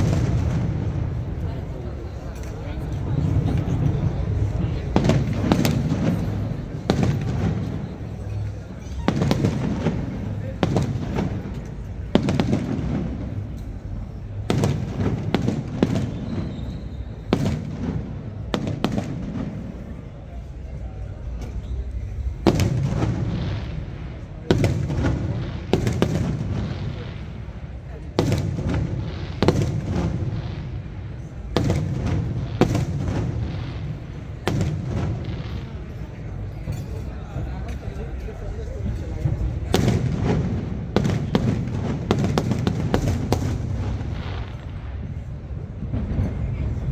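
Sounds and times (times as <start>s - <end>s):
fireworks bangs: 0.0s - 20.8s, 21.7s - 36.6s, 39.2s - 46.9s
low rumbling echo: 0.0s - 46.9s.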